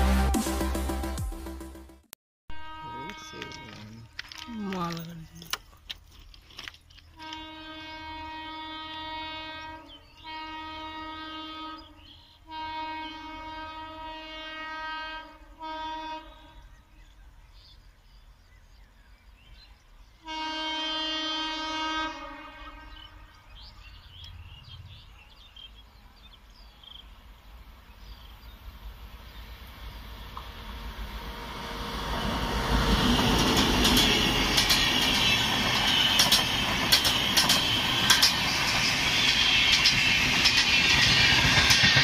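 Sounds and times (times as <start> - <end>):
locomotive air horn blasts: 2.5 - 4.8, 7.2 - 16.6, 20.2 - 23.6
train rumble: 2.7 - 9.1, 21.5 - 42.0.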